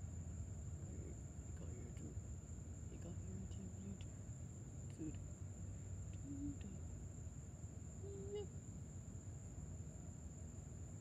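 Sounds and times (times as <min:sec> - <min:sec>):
crickets chirping: 0:00.0 - 0:11.0
faint voice-like tones: 0:06.1 - 0:06.8, 0:08.0 - 0:08.5.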